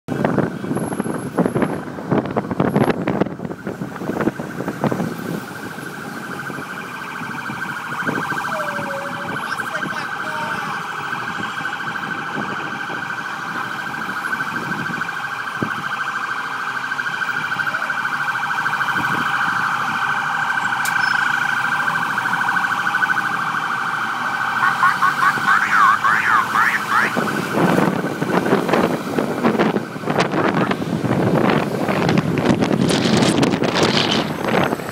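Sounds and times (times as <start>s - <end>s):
emergency vehicle siren: 0.1s - 34.9s
road noise: 0.1s - 34.9s.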